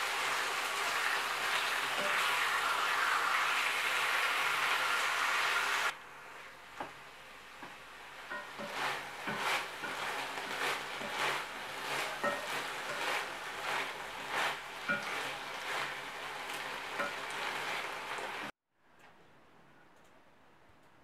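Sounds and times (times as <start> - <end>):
chicken sizzling in a frying pan: 0.0 - 6.4, 7.2 - 18.5
wooden spatula scraping a pan: 8.3 - 18.5.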